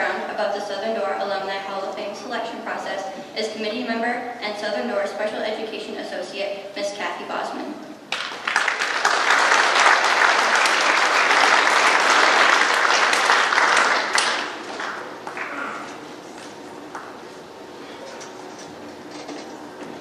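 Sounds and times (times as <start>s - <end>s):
audience applauding: 8.1s - 15.5s.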